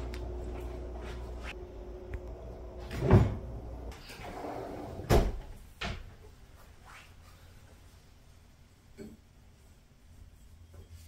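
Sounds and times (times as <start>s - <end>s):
cabinet doors and drawers knocking shut: 2.9s - 3.5s, 4.9s - 6.1s.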